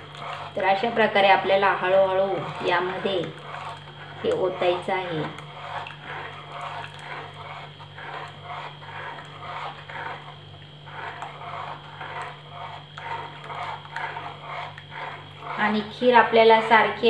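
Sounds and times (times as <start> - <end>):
spoon scraping a pan: 0.0 - 17.0.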